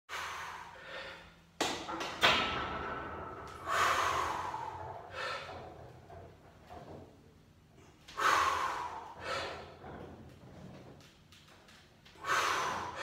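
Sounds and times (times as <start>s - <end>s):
person breathing hard: 0.1s - 1.5s, 3.5s - 5.8s, 8.1s - 9.9s, 12.1s - 13.0s.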